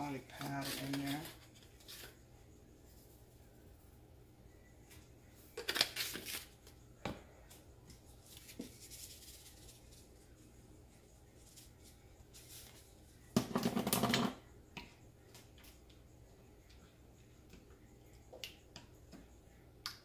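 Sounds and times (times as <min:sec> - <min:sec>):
spice shaker shaking: 0:08.1 - 0:12.9.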